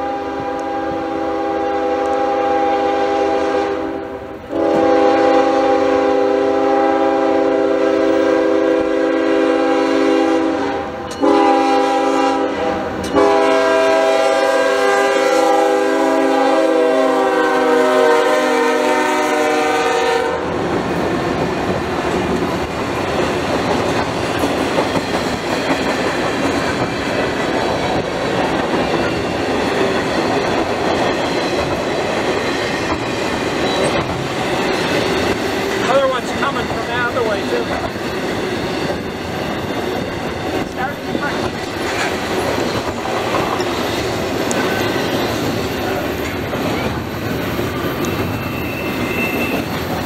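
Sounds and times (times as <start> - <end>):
locomotive air horn blasts: 0.0 - 20.5
freight train cars clattering: 20.6 - 50.0.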